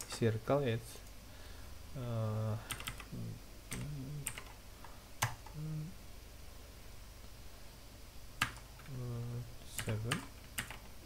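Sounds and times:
keyboard keystrokes: 8.4 - 8.9.

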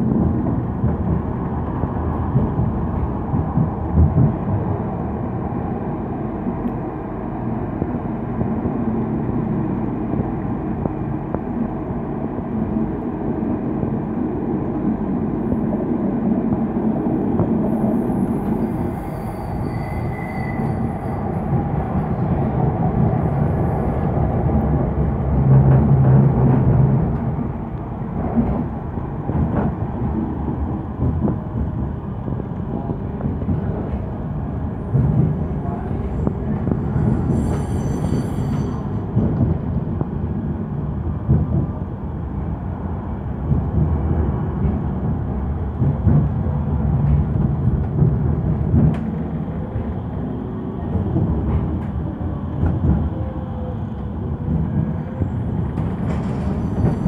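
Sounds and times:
tram wheels rumbling on rail: 0.0 - 57.0
faint high-pitched squeal: 18.6 - 21.4, 37.2 - 39.0.

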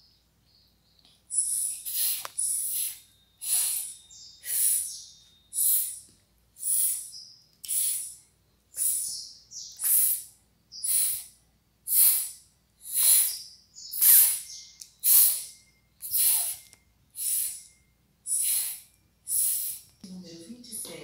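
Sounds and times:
girl's sharp hissing exhalations: 1.4 - 5.0, 6.6 - 8.2, 8.8 - 9.1, 9.8 - 13.4, 14.0 - 17.7, 18.3 - 19.9.

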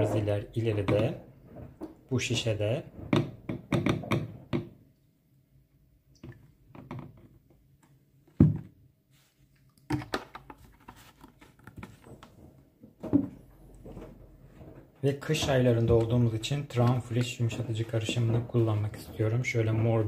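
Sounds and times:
plastic bottles clicking and knocking: 9.8 - 20.0.

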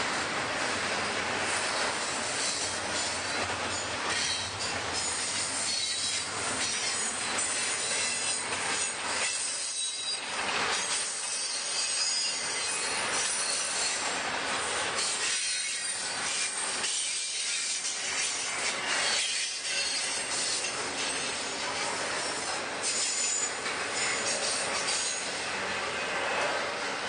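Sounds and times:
freight train wheels on rails: 0.0 - 27.0
high-pitched wheel squeal: 2.2 - 10.2, 11.0 - 14.1, 15.0 - 25.4.

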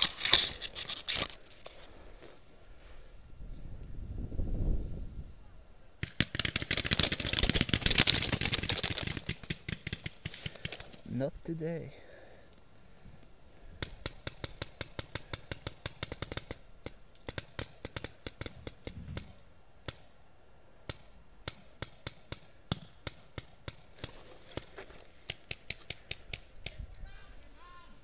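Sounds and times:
paintball markers firing: 6.0 - 11.0, 13.7 - 20.1, 20.9 - 26.8.

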